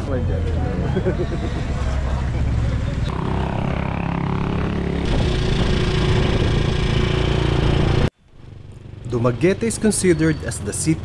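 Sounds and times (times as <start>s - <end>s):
motorcycle engine running: 3.1s - 10.1s.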